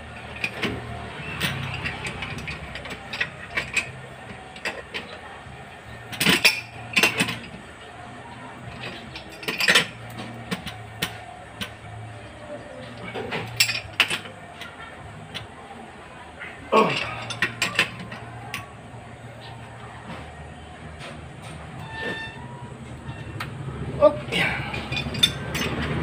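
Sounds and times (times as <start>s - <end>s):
hand tools clinking on metal pipes: 0.1s - 5.2s, 6.1s - 7.6s, 8.7s - 11.8s, 12.8s - 15.5s, 16.8s - 18.7s, 24.3s - 26.0s.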